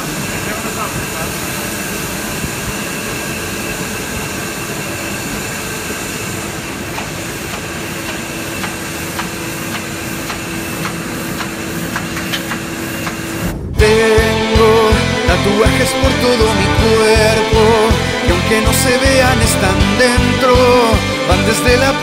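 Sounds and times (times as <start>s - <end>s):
steady low hum: 0.0s - 22.0s
printing press running: 5.9s - 13.5s.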